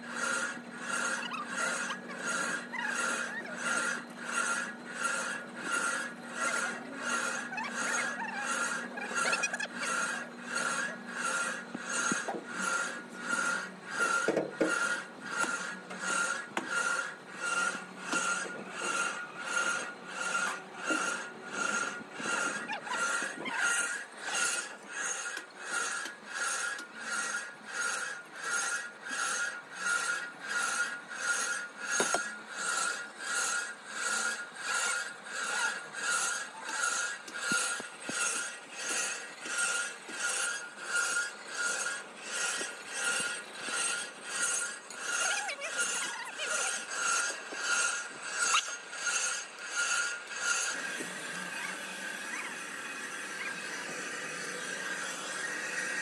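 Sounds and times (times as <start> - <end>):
rasping strokes: 0.0 - 56.0.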